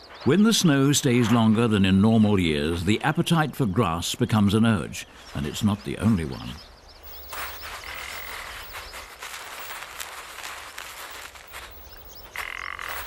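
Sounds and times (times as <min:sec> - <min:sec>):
marmot digging in crusted snow: 0:07.0 - 0:13.0
buzzing croak-like animal calls: 0:12.3 - 0:13.0.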